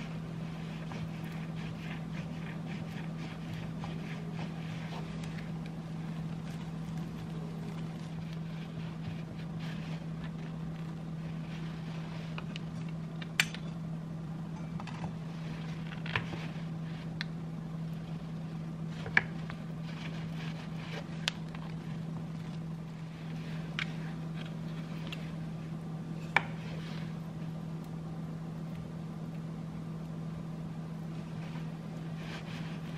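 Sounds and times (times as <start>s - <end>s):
knife scraping bread: 0.0s - 12.5s.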